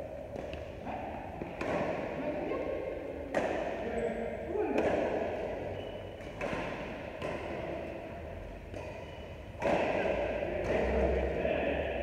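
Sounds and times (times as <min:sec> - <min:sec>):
rackets striking shuttlecock: 0:00.2 - 0:02.1, 0:03.3 - 0:03.8, 0:04.8 - 0:05.3, 0:06.0 - 0:11.1.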